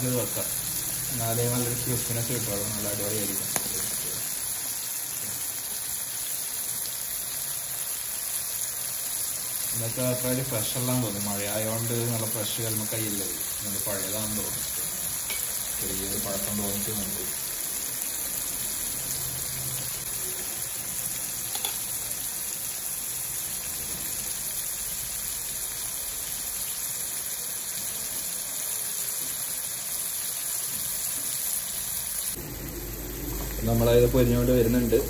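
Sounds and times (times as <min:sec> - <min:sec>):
oil sizzling and bubbling: 0:00.0 - 0:35.0
oil popping: 0:21.5 - 0:21.9.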